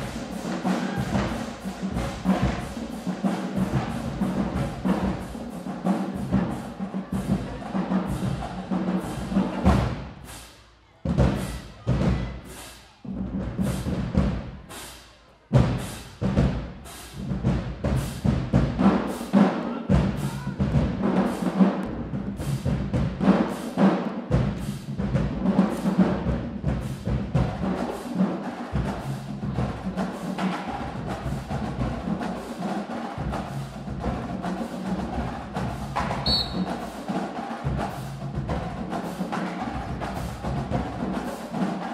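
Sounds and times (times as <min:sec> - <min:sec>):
rapid snare drum strokes: 0:00.0 - 0:41.9.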